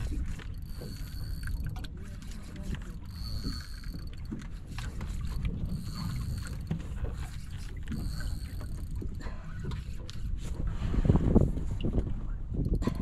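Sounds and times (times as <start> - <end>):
fishing reel drag whining: 0.0 - 9.2
boat engine rumble: 0.0 - 13.0
water: 0.0 - 13.0.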